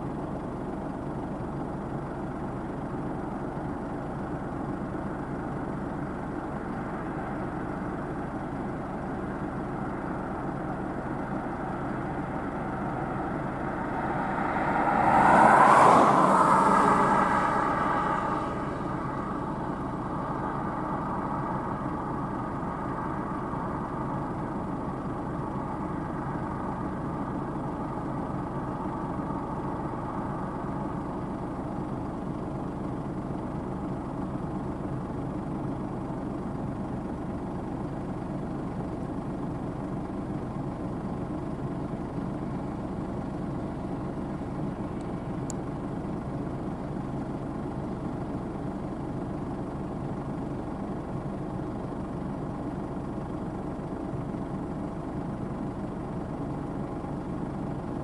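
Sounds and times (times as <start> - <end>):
combine harvester drone: 0.0 - 58.0
higher hum: 3.6 - 35.1.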